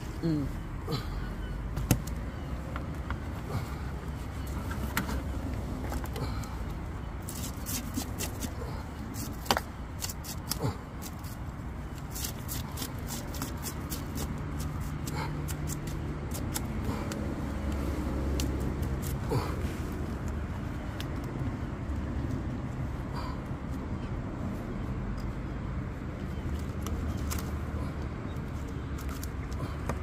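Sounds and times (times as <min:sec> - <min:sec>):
steady low rumble: 0:00.0 - 0:07.6
knife scraping fish scales: 0:07.3 - 0:08.6.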